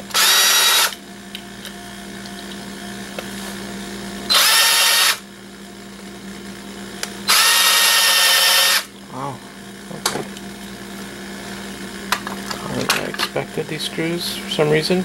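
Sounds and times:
cordless drill spinning: 0.0s - 1.0s, 4.3s - 5.2s, 7.2s - 8.9s.

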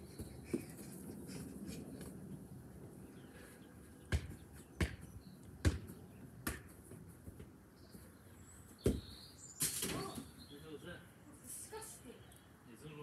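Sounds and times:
football kicked thuds: 4.1s - 6.7s, 8.8s - 9.1s.

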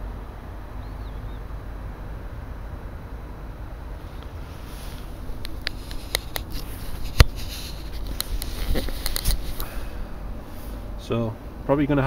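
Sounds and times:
camera handling clicks and rustles: 5.4s - 9.7s.

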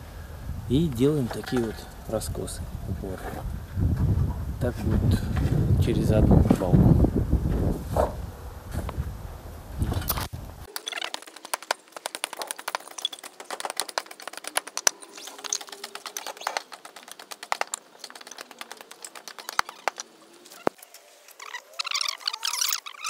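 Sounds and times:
short high squeaks: 18.0s - 23.0s.

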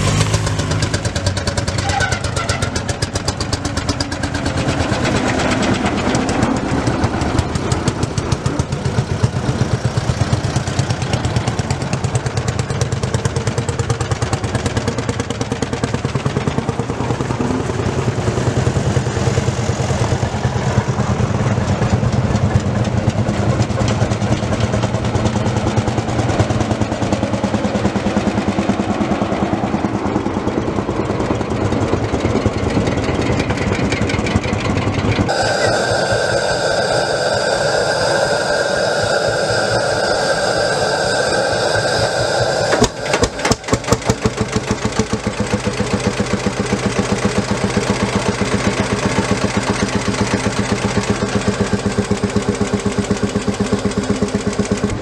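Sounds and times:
tractor engine running steadily: 0.0s - 55.0s.

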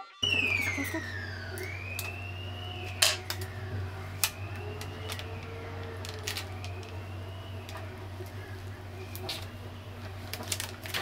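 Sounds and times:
plastic film crinkling: 4.1s - 11.0s.

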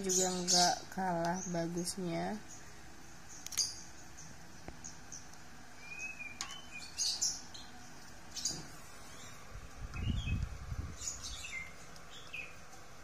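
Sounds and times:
small birds chirping faintly: 0.0s - 13.0s
bird whistle: 5.8s - 7.0s.

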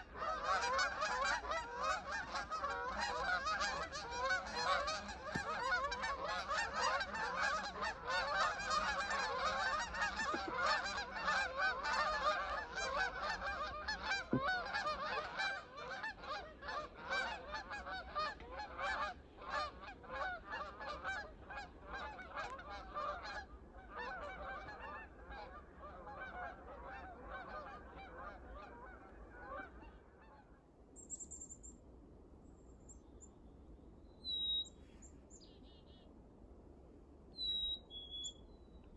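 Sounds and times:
flock of geese honking: 0.0s - 30.7s
small bird chirping: 31.0s - 31.8s, 37.4s - 38.8s.

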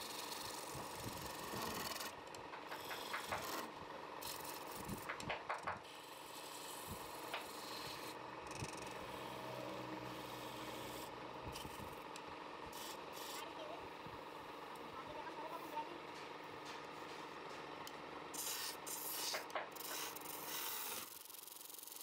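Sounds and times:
wood lathe running: 0.0s - 5.3s, 5.9s - 11.8s, 12.4s - 16.3s
tool scraping spinning wood: 0.0s - 22.0s.

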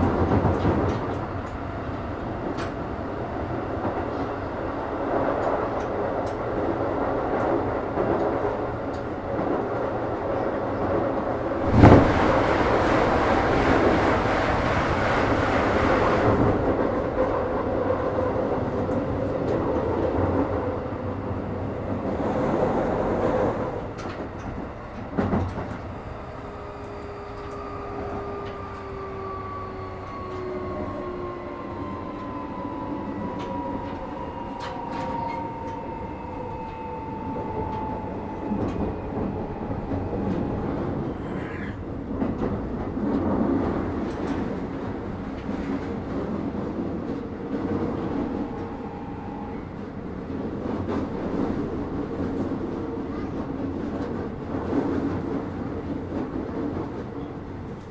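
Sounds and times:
train rolling noise: 0.0s - 57.9s.

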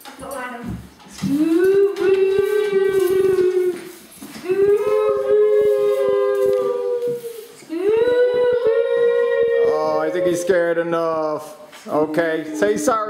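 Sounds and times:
children wailing through tubes: 1.3s - 11.2s.

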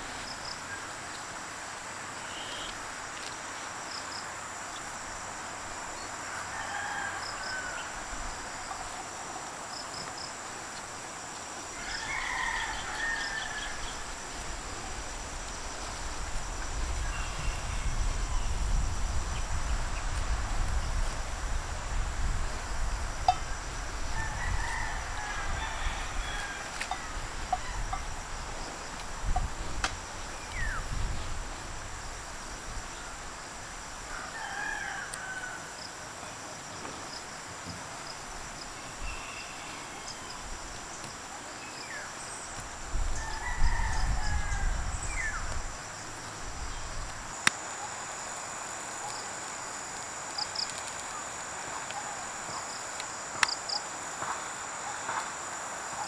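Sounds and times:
high insect drone: 0.0s - 56.0s
roosters crowing: 6.2s - 8.6s, 11.7s - 14.4s, 23.4s - 28.9s, 34.1s - 35.9s, 43.1s - 46.4s.

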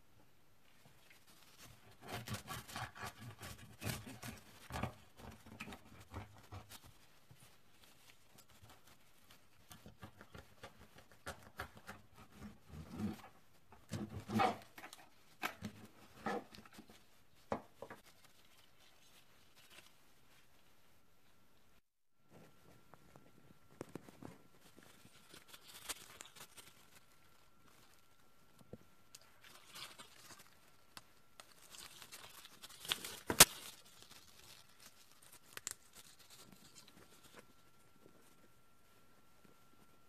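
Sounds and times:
knife sawing through bread crust: 1.8s - 6.7s.

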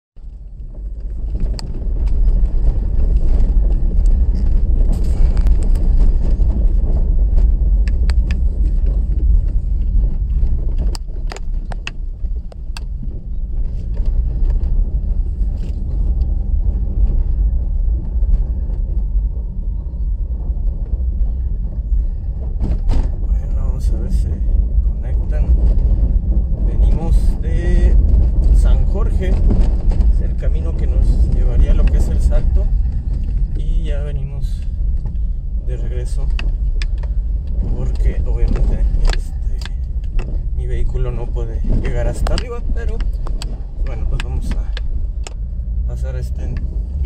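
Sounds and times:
car clicks and rattles: 0.2s - 47.0s
tyre and road rumble: 0.2s - 47.0s.

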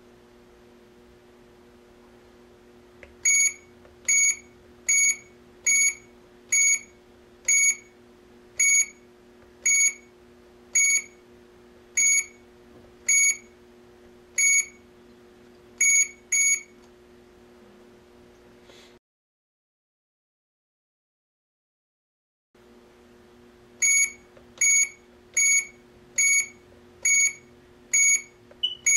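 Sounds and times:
faint steady hum: 0.0s - 19.0s, 22.6s - 28.9s
keypad beeps: 28.0s - 28.9s.

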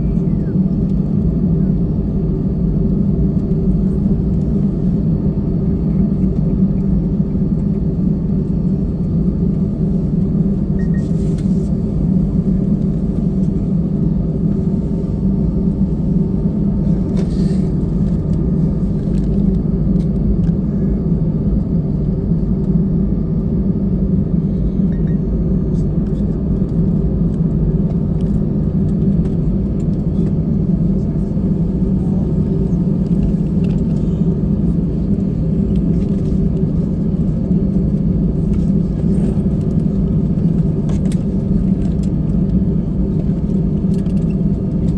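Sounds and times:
jet engines idling: 0.0s - 44.9s.

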